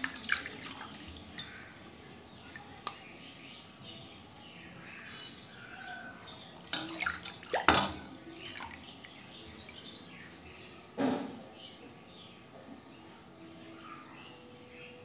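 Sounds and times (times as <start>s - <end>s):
water dripping and splashing: 0.0s - 3.1s, 6.3s - 10.1s.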